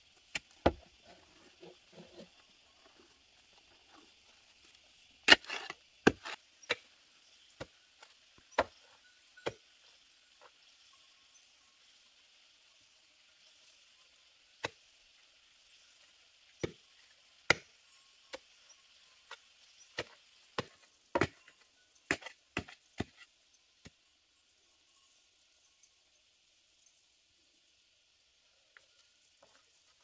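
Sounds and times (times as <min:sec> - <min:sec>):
digging tool striking hard earth: 0:05.2 - 0:06.9, 0:19.9 - 0:21.5, 0:22.1 - 0:23.2.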